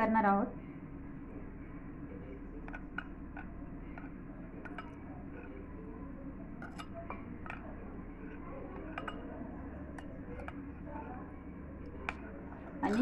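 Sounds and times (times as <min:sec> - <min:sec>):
steady low hum: 0:00.0 - 0:13.0
metal spoon clinking glass bowl: 0:02.7 - 0:05.6, 0:06.6 - 0:11.0.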